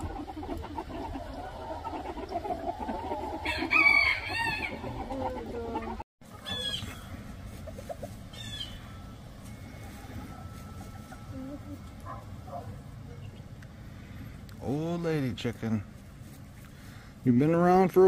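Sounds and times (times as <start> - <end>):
chickens clucking: 0.0 - 14.8
rooster crowing: 3.4 - 4.8.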